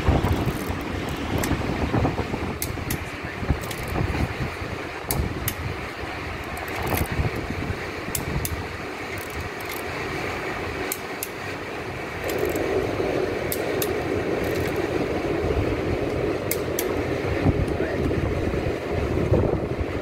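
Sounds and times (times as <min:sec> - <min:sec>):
machine background noise: 0:00.0 - 0:20.0
hand tools clicking: 0:00.2 - 0:01.6, 0:03.6 - 0:04.0, 0:06.4 - 0:07.1, 0:09.2 - 0:09.9, 0:12.2 - 0:12.6, 0:13.5 - 0:14.8.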